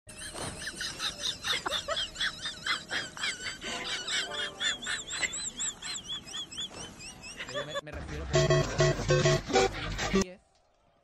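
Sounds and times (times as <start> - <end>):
birds chirping: 0.1 - 7.9.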